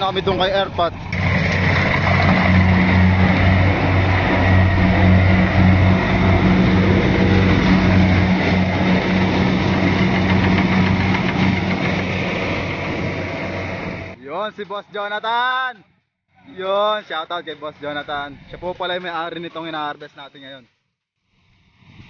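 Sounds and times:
combine harvester engine drone: 0.0 - 14.2.

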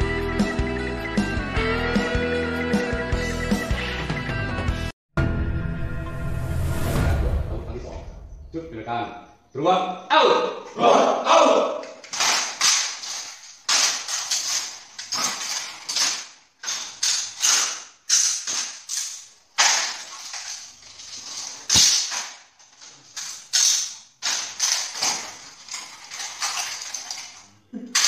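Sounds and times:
rifles slapped and clacking: 11.8 - 28.0.

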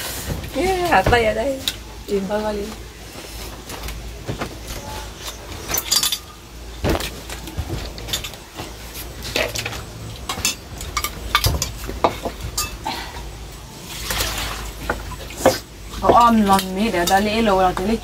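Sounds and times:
metal spoons clinking on bowls: 5.6 - 6.4, 9.3 - 12.8, 15.5 - 18.0.

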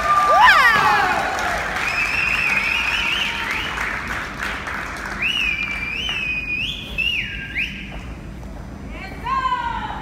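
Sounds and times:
audience applauding: 0.0 - 6.4
shrill crowd whistling: 1.8 - 3.9, 5.2 - 8.0.

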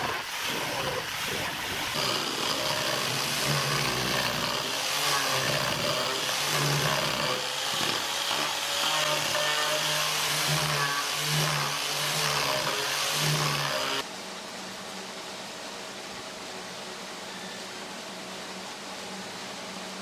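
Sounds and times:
angle grinder motor whine: 0.0 - 14.0
sanding pad rasping on wood: 0.0 - 14.0.

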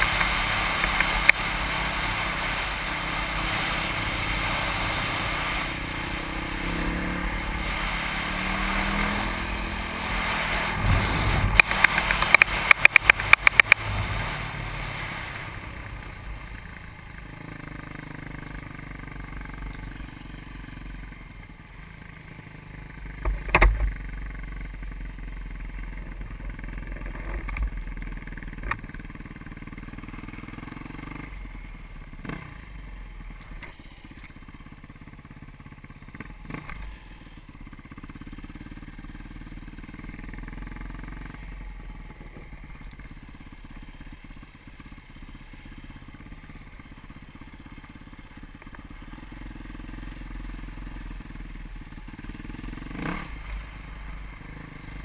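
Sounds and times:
dirt bike engine: 0.0 - 55.0
wind rush on microphone: 10.1 - 14.7
sharp clicks: 11.5 - 13.8.

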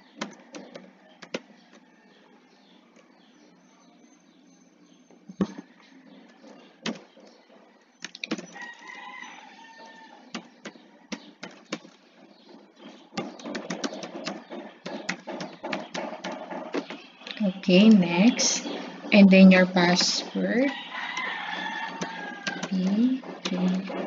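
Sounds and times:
rooster crowing: 8.6 - 10.3, 20.6 - 22.8.

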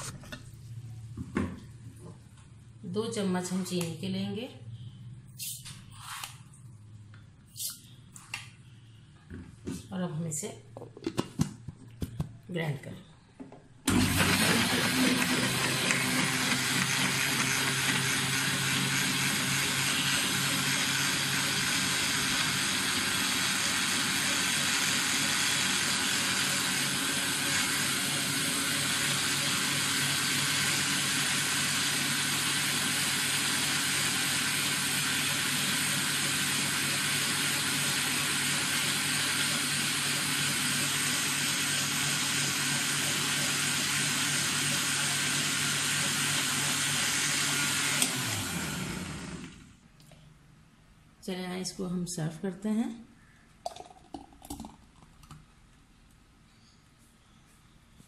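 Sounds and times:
blender running: 13.9 - 49.8
blender switch click: 48.0 - 48.2.

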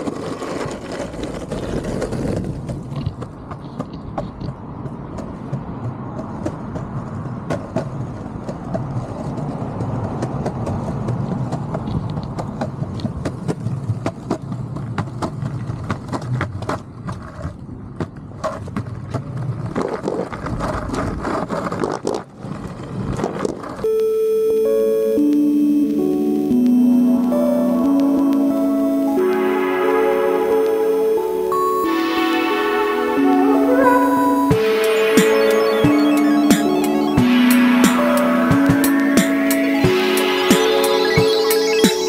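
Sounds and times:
longboard wheels rumbling on concrete: 0.0 - 23.8
wheels clicking over joints: 0.0 - 23.8.

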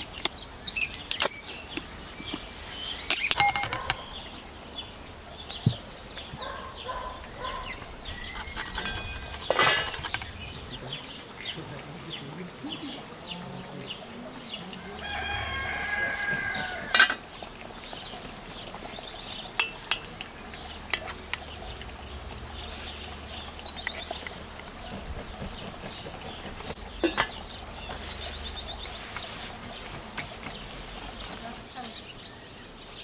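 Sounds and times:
small birds chirping: 0.0 - 33.0
spoon and lid clinking on pot: 3.1 - 4.1, 8.4 - 10.3, 19.6 - 20.1, 27.0 - 27.4
rooster crowing: 14.8 - 17.0.

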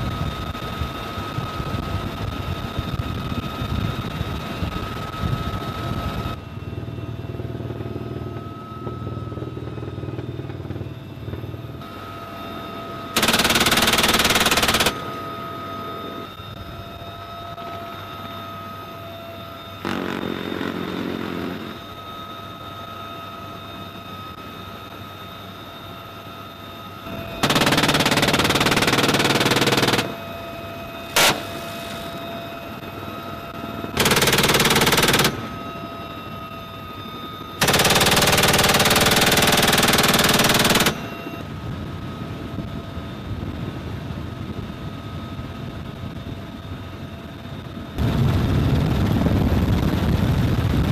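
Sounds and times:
helicopter cabin noise: 0.0 - 50.9
helicopter engine whine: 0.0 - 50.9
minigun firing bursts: 13.2 - 15.1, 27.1 - 30.2, 31.2 - 31.6, 34.0 - 35.6, 37.6 - 41.1.

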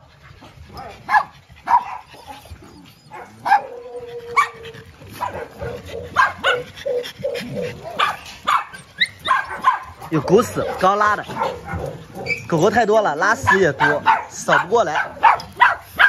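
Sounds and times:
dogs barking: 0.0 - 16.0
dog yipping: 0.8 - 16.0
dog whining: 1.8 - 10.8, 11.5 - 14.0.

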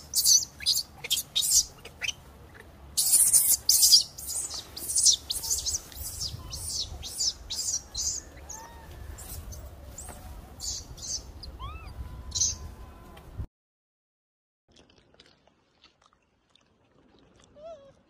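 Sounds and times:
birds chirping: 0.0 - 12.8
rising and falling bird calls: 0.0 - 12.8.

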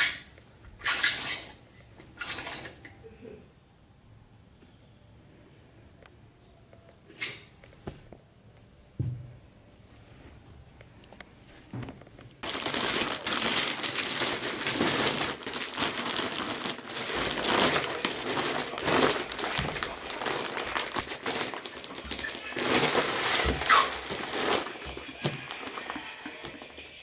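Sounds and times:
plastic bag crinkling loudly: 12.4 - 26.7.

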